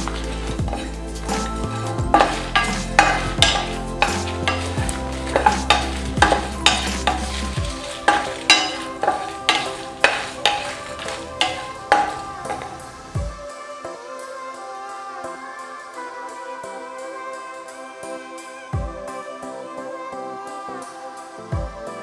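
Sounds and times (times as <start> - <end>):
spatula scraping spices in pan: 0.0 - 13.1.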